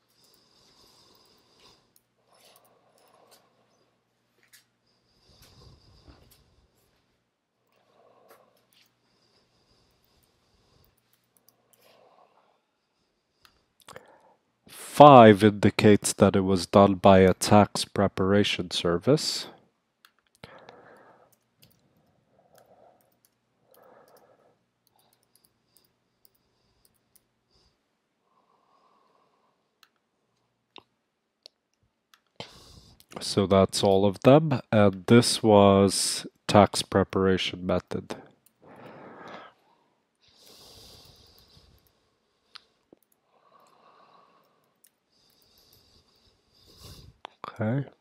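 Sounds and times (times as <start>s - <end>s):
faint keyboard typing: 0.0s - 3.8s, 9.9s - 12.1s, 20.0s - 27.3s
faint breathing: 0.0s - 14.7s, 20.4s - 30.0s, 32.4s - 33.2s, 38.1s - 47.4s
computer keyboard clicks: 21.3s - 21.8s, 24.8s - 27.3s.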